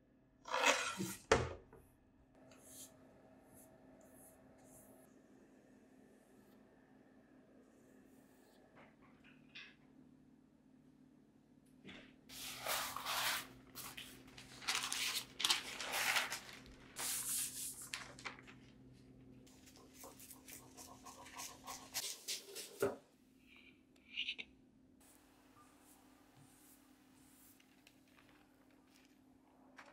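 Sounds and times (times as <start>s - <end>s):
paper rustling and crinkling: 12.3s - 18.8s, 27.4s - 29.9s.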